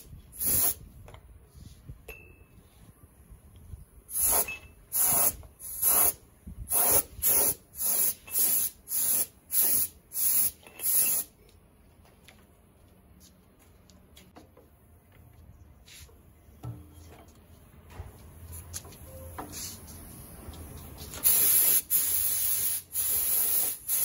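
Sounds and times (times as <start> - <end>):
spray gun hissing bursts: 0.4 - 0.8, 4.1 - 11.3, 21.2 - 24.0.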